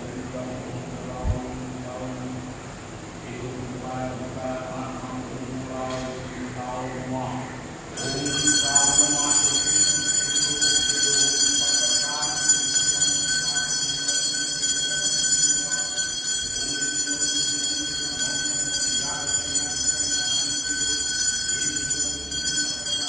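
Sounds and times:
priest intoning: 0:07.9 - 0:23.0
bell ringing: 0:08.0 - 0:23.0.

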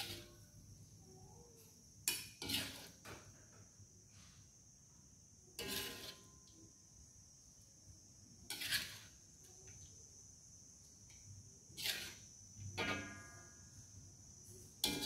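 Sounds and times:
metal ladle scraping a wok: 0:00.0 - 0:00.4, 0:02.1 - 0:03.0, 0:05.6 - 0:06.3, 0:08.5 - 0:09.2, 0:11.8 - 0:13.2
faint high-pitched tone: 0:00.0 - 0:01.8.

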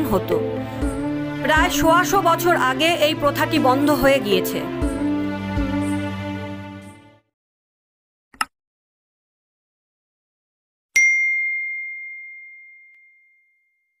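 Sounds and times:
high bell ding: 0:11.0 - 0:14.0.

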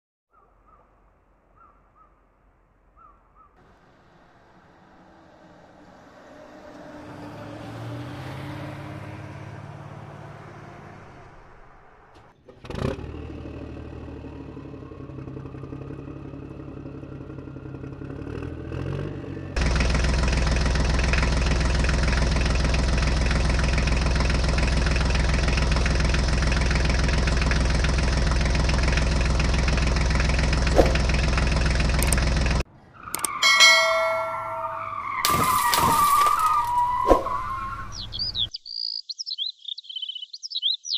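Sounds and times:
tractor engine running: 0:11.5 - 0:35.2
sharp click: 0:33.1 - 0:33.4.

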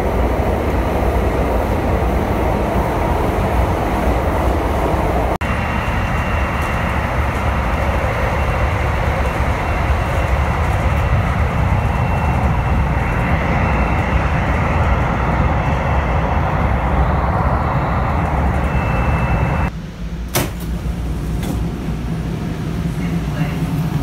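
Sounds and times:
train rumble and hiss: 0:00.0 - 0:24.0
faint high whine: 0:05.4 - 0:19.7.

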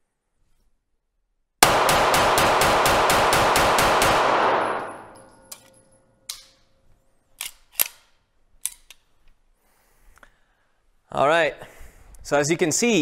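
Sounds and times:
pistol shots echoing indoors: 0:01.6 - 0:06.8
pistol handling clicks: 0:04.7 - 0:06.7, 0:07.4 - 0:09.1.

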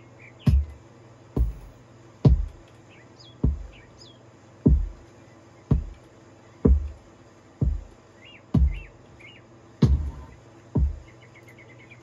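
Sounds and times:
steady low hum: 0:00.0 - 0:12.0
deep kick drum thumps: 0:00.5 - 0:00.8, 0:01.4 - 0:02.6, 0:03.4 - 0:03.9, 0:04.7 - 0:05.0, 0:05.7 - 0:06.0, 0:06.7 - 0:07.0, 0:07.6 - 0:09.0, 0:09.8 - 0:11.1
faint high chirping: 0:07.9 - 0:12.0.

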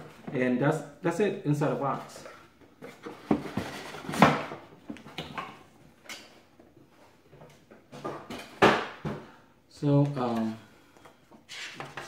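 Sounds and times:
cardboard rustling: 0:02.1 - 0:04.6.

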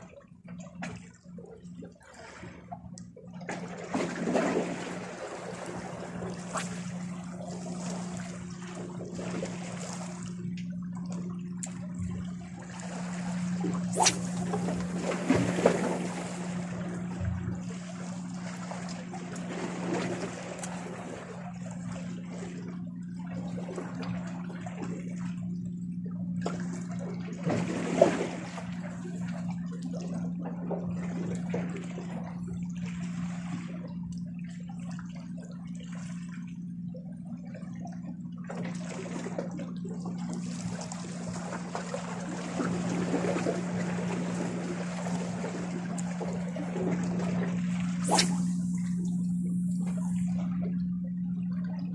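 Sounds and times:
steady low hum: 0:00.0 - 0:51.9.

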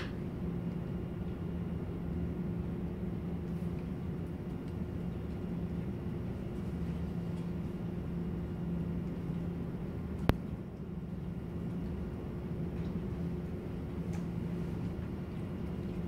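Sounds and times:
low machine hum: 0:00.0 - 0:16.0.

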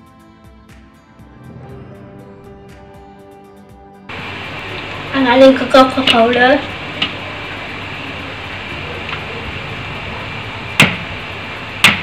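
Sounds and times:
steady background hiss: 0:04.1 - 0:12.0
utensil knocking on mixing bowl: 0:11.8 - 0:12.0.

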